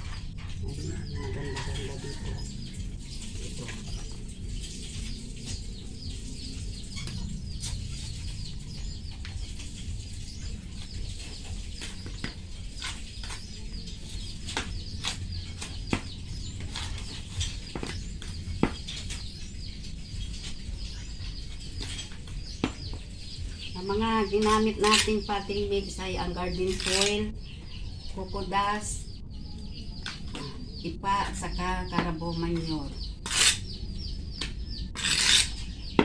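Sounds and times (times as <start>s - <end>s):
small birds chirping: 0.0s - 36.0s
trowel tapping and scraping soil: 11.8s - 19.2s, 23.9s - 25.2s, 34.4s - 36.0s.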